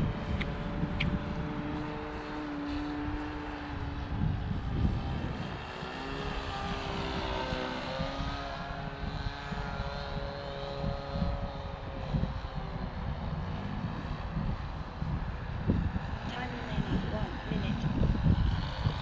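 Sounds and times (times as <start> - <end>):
model plane engine in flight: 0.0 - 19.0.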